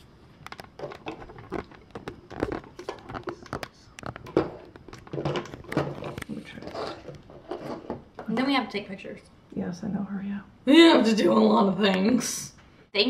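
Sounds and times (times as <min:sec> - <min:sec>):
clicks and crinkling rustles: 0:00.3 - 0:08.4.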